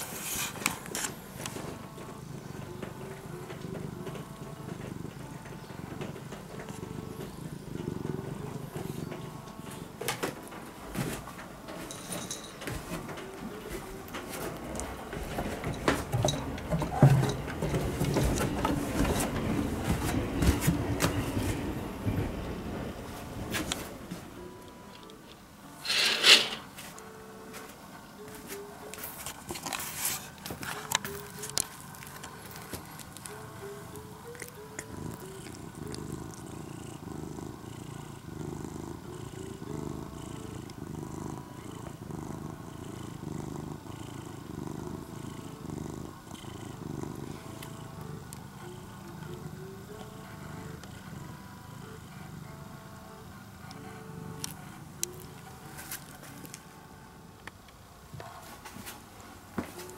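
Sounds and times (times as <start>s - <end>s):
cat purring: 0.0s - 59.9s
quiet background music: 0.0s - 59.9s
bedding rustling and knocking: 10.0s - 24.3s.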